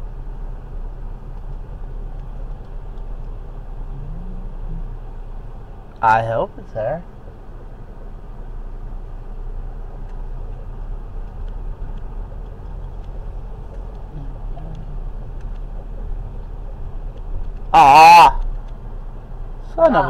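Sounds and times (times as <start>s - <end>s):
car driving rumble: 0.0s - 20.0s
faint clicks: 1.3s - 3.4s, 9.9s - 19.0s.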